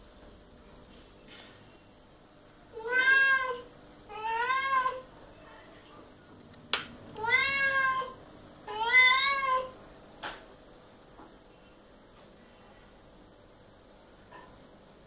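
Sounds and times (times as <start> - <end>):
cat meowing: 2.7 - 5.0, 7.2 - 9.7.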